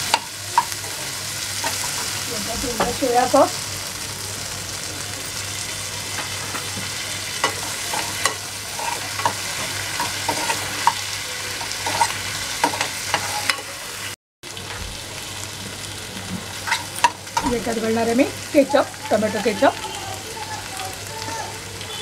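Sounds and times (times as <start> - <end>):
vegetables sizzling in a pan: 0.0 - 22.0
steel spoon scraping a pan: 0.1 - 3.0, 7.4 - 13.7, 16.6 - 17.2.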